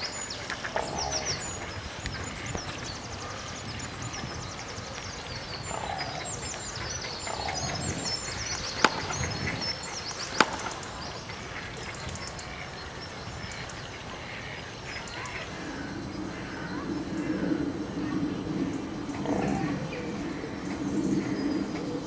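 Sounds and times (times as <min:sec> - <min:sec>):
small birds chirping: 0:00.0 - 0:22.0
sharp knocks: 0:10.4 - 0:10.8.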